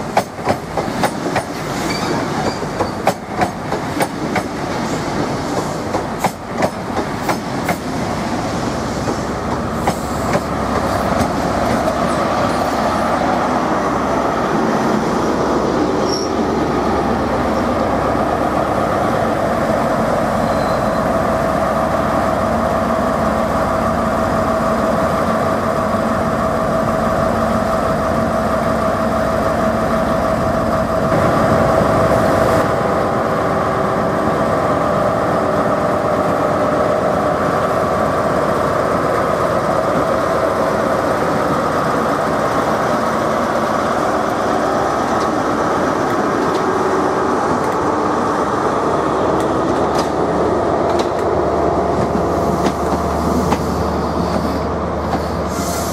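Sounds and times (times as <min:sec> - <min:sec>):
train rolling past slowly: 0:00.0 - 0:55.9.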